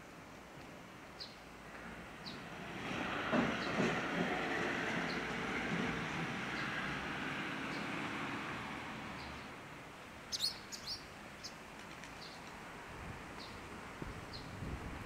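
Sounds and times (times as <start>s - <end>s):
passing vehicle: 1.7s - 9.8s
small birds chirping: 10.3s - 12.5s.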